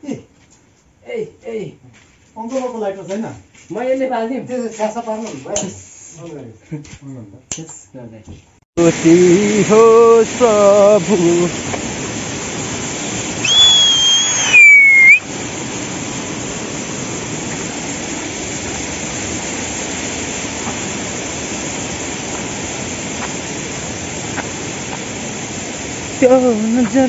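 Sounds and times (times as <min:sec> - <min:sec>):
mountain stream rushing: 0:08.8 - 0:27.0
two-note whistle: 0:13.4 - 0:15.2.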